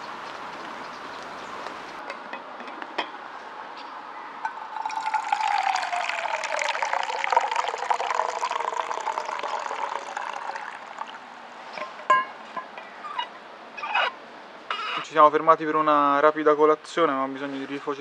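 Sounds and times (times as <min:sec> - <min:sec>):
hot drink pouring into mug: 0:04.5 - 0:11.2.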